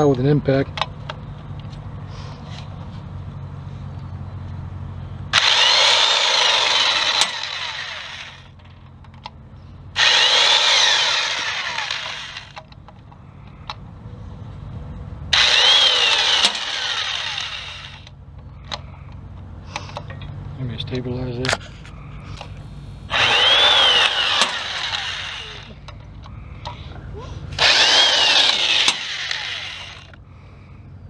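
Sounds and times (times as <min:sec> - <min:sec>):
electric impact wrench bursts: 0:05.4 - 0:08.6, 0:10.0 - 0:12.6, 0:15.3 - 0:18.1, 0:23.1 - 0:25.8, 0:27.6 - 0:30.2.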